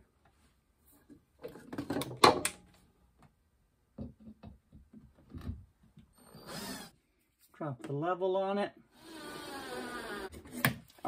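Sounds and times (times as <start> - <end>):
cordless drill driving screw: 6.2 - 7.0, 9.0 - 10.3.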